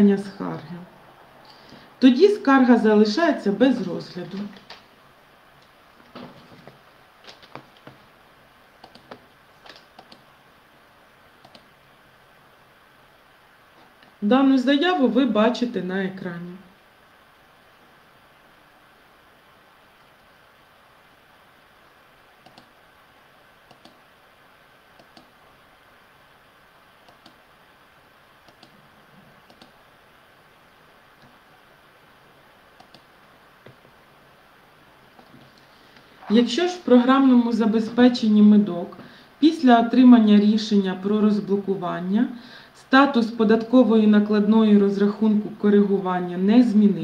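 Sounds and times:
low steady hiss: 0:00.0 - 0:47.0
computer keyboard clicks and taps: 0:08.8 - 0:10.2.

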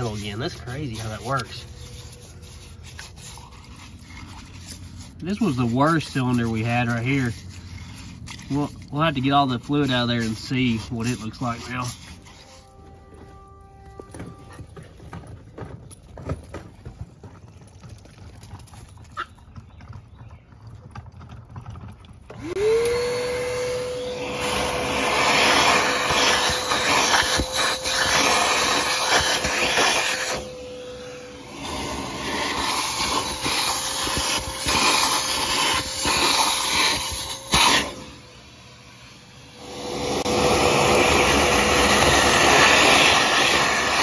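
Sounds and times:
vacuum slurping liquid: 0:00.0 - 0:12.5, 0:24.0 - 0:30.6, 0:31.3 - 0:38.0, 0:39.6 - 0:44.0
shop vacuum motor whine: 0:07.9 - 0:14.9, 0:22.3 - 0:44.0.

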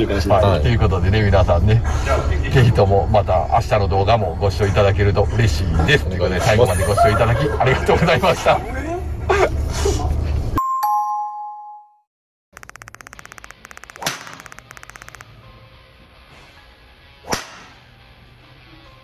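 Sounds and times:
rapid ticking: 0:12.5 - 0:15.3
golf clubs striking balls: 0:13.0 - 0:15.3, 0:17.3 - 0:17.8.

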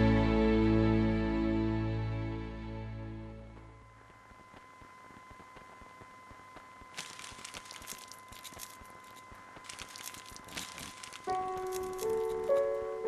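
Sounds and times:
crumpled material crackling: 0:06.8 - 0:12.8.

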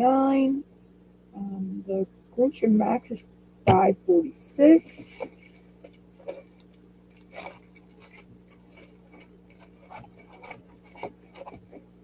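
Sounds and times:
plastic packaging crinkling: 0:04.7 - 0:11.9.

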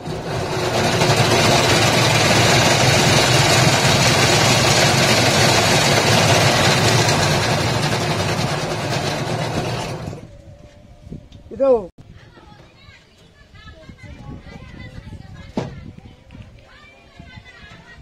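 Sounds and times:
cotton candy machine whirring: 0:00.0 - 0:10.3.

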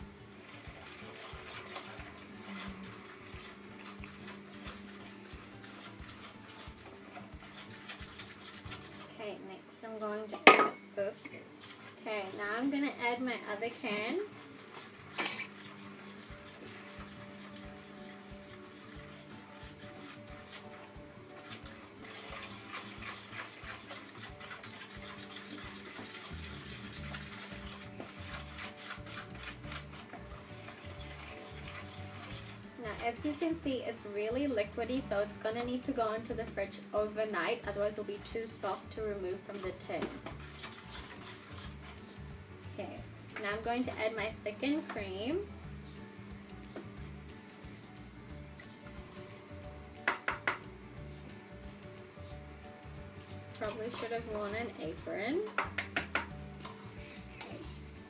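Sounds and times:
faint music with low beat: 0:00.0 - 0:58.0
fork scraping plastic bowl: 0:00.6 - 0:09.2, 0:13.6 - 0:36.3, 0:39.5 - 0:42.2, 0:53.2 - 0:58.0.

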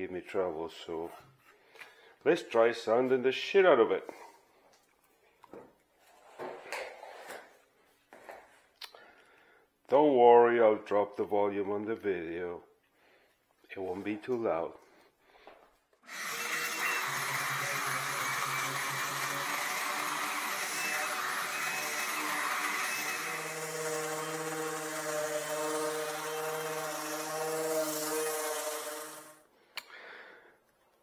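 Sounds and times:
orbital sander whirring: 0:16.0 - 0:29.4.

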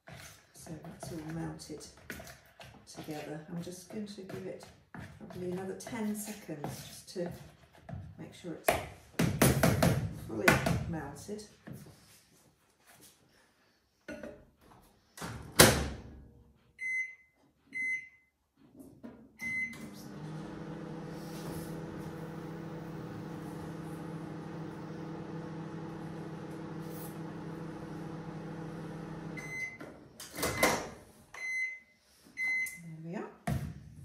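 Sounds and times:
microwave oven humming: 0:19.7 - 0:29.5.

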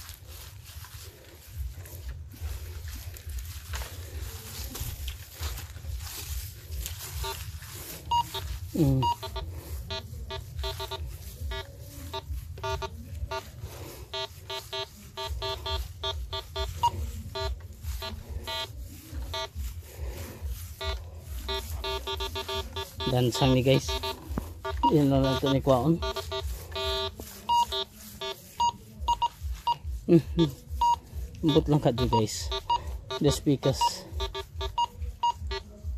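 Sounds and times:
metal detector beeps: 0:07.1 - 0:13.4, 0:14.1 - 0:18.7, 0:19.3 - 0:19.6, 0:20.8 - 0:29.8, 0:30.4 - 0:35.6.

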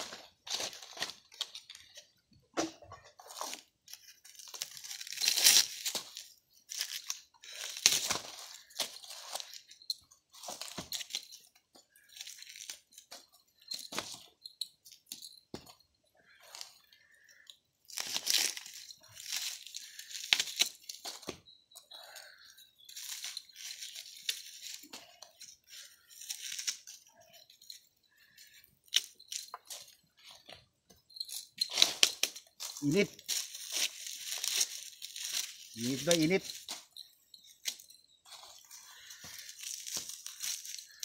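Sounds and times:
corn husks being torn by hand: 0:03.2 - 0:09.5, 0:16.6 - 0:21.4, 0:38.5 - 0:41.0.

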